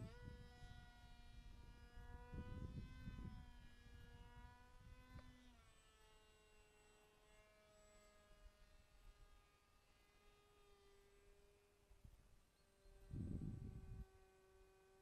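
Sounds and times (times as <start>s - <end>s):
model aircraft motor whine: 0.0s - 15.0s.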